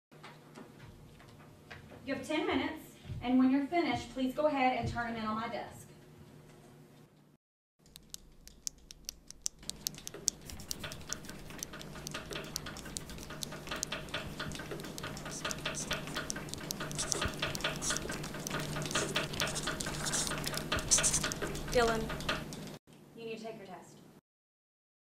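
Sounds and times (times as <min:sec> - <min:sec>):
pencils scratching and tapping: 0:07.8 - 0:22.7
steady low hum: 0:07.9 - 0:22.4.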